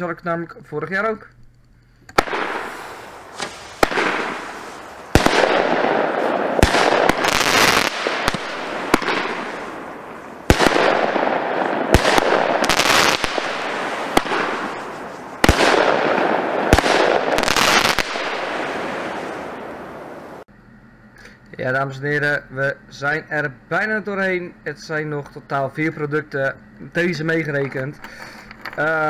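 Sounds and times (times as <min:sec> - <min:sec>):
firework crackling: 0:02.2 - 0:20.4
firework launch bangs: 0:02.2 - 0:20.4.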